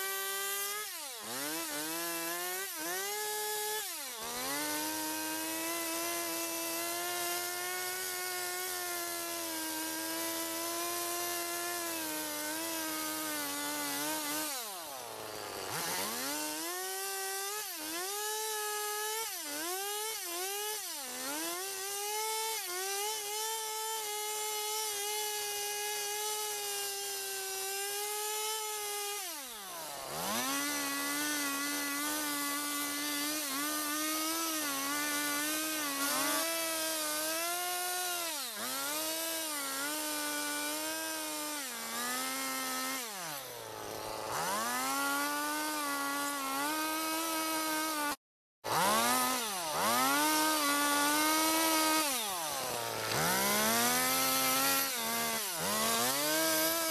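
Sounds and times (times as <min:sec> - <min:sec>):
chainsaw cutting wood: 0:00.0 - 0:56.9.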